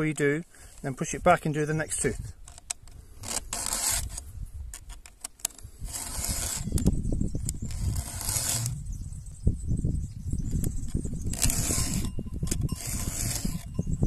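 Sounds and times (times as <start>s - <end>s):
file rasping on metal: 3.2s - 4.2s, 5.8s - 6.8s, 7.7s - 8.7s, 11.3s - 12.1s, 12.7s - 13.7s.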